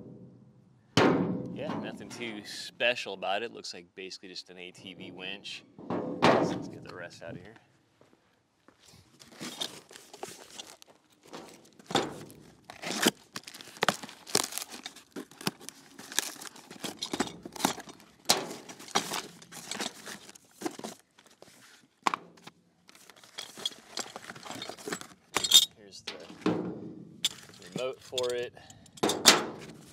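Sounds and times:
cardboard and paper rustling and tearing: 0:09.1 - 0:25.3.

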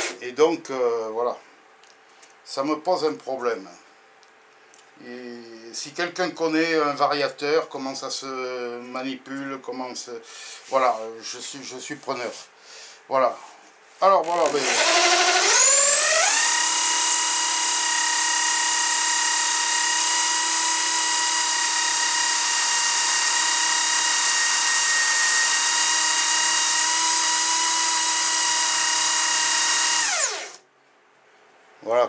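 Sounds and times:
electric drill whining: 0:14.2 - 0:30.6.

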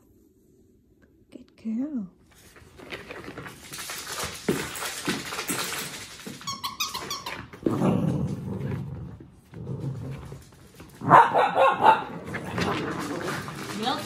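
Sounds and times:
dog high squeaks: 0:06.4 - 0:07.6
dogs growling: 0:07.6 - 0:14.0.

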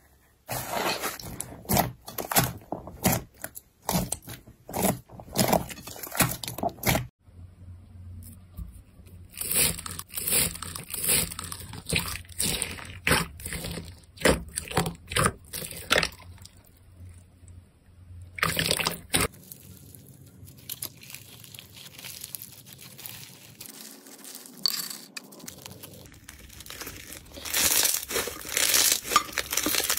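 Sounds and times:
crunchy slime squishing: 0:00.5 - 0:07.1, 0:09.2 - 0:17.2, 0:18.3 - 0:29.9
wet slime squishing: 0:01.2 - 0:07.1, 0:09.2 - 0:17.6, 0:18.3 - 0:24.6, 0:25.3 - 0:29.9
slime stretched with crinkly rustle: 0:19.3 - 0:29.9.

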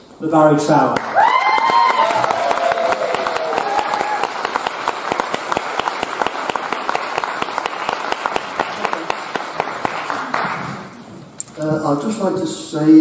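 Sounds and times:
audience applause: 0:01.0 - 0:11.1.

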